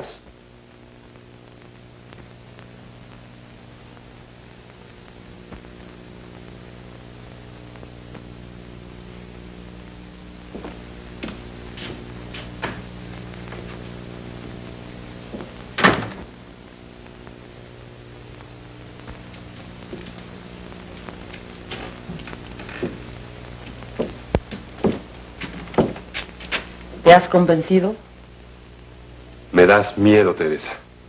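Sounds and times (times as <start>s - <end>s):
footsteps on hard floor: 10.5s - 12.9s, 13.5s - 13.9s, 15.3s - 15.6s, 19.1s - 20.3s, 20.9s - 26.7s
door shutting: 15.8s - 16.3s.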